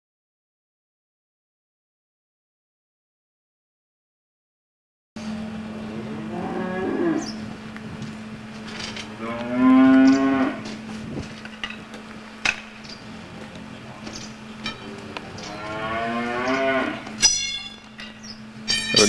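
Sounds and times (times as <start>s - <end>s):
steady hum: 5.2s - 19.0s
cattle mooing: 5.8s - 7.6s, 9.0s - 10.8s, 14.8s - 17.2s.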